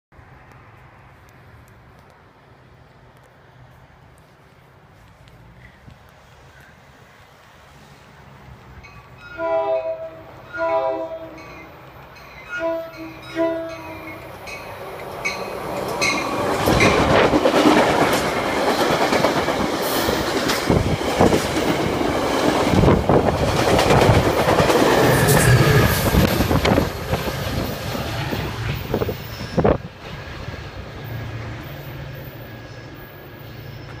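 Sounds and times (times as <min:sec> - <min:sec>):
train passing with roar: 0:00.2 - 0:34.0
train horn blasts: 0:09.2 - 0:11.7, 0:12.5 - 0:14.2.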